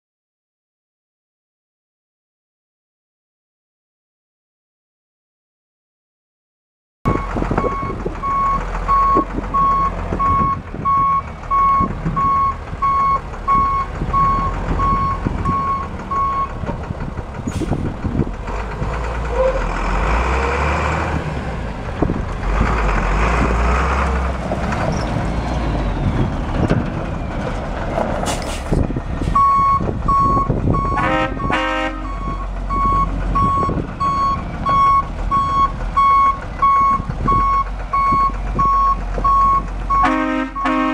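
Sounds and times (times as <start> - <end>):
reversing alarm beeping: 7.1 - 16.6, 29.4 - 40.8
lower beeping: 7.1 - 16.7, 29.3 - 40.0
truck diesel engine running: 7.1 - 40.9.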